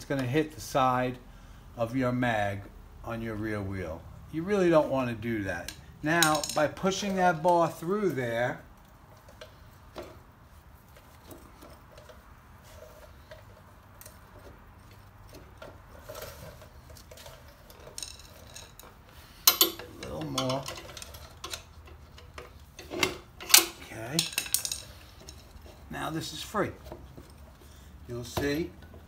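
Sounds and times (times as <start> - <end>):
metal rod clinking: 5.7 - 7.2, 17.7 - 25.6.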